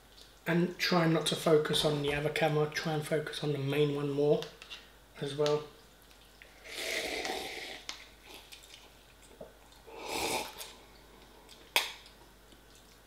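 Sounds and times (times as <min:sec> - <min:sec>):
slurping noodles: 0:06.5 - 0:08.5, 0:09.9 - 0:10.8.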